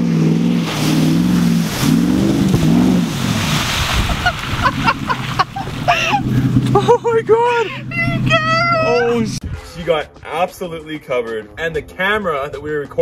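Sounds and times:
truck engine revving hard: 0.0s - 9.4s
big splash of muddy water: 0.5s - 6.8s
excited voices: 5.9s - 9.4s.

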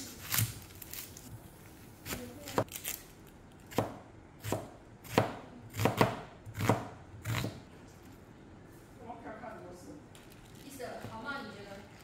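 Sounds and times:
knife chopping onion on plastic board: 3.7s - 7.7s.

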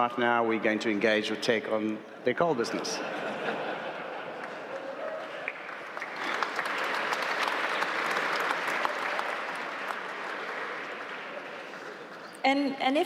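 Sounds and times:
audience applauding: 4.1s - 12.4s.

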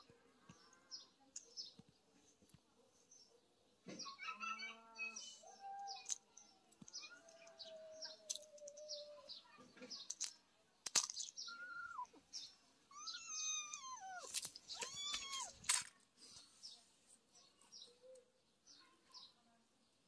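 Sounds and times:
small birds chirping: 0.0s - 20.0s
kitten mewing: 12.9s - 15.7s.

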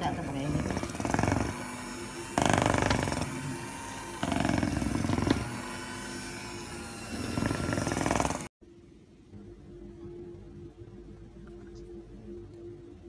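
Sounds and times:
electric hand mixer whirring: 0.0s - 8.5s.

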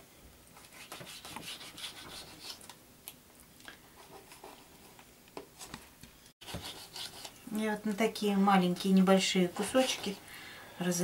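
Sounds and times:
knife scraping through fish: 6.4s - 7.4s.

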